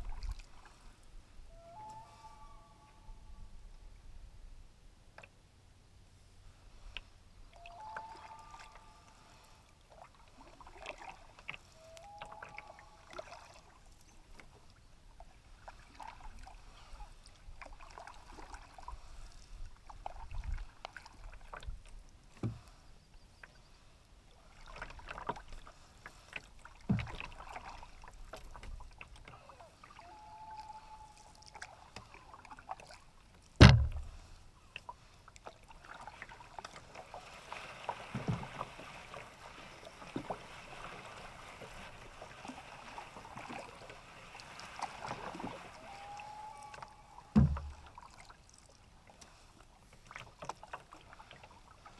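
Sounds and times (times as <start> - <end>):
water swishing from paddle strokes: 0.0 - 2.4, 6.4 - 51.9
bird calls: 1.5 - 3.4, 7.6 - 9.0
knocks on canoe: 33.6 - 34.2, 47.3 - 47.8.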